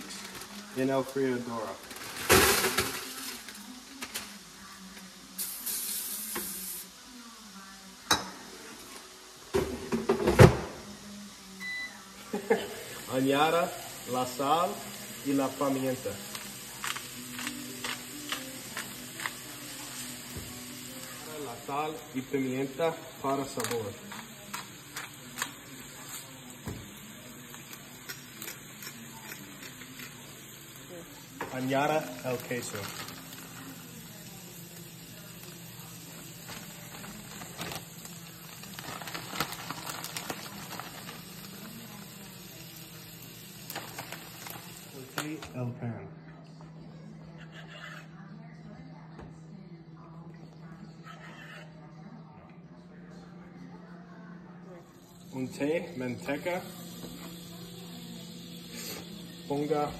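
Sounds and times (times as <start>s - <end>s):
plastic bag rustling: 0.0s - 3.6s, 32.2s - 33.7s, 36.4s - 42.0s, 43.7s - 45.5s
food sizzling in a pan: 0.0s - 45.6s, 55.0s - 59.9s
cooking spray hissing: 0.0s - 45.7s, 54.9s - 59.9s.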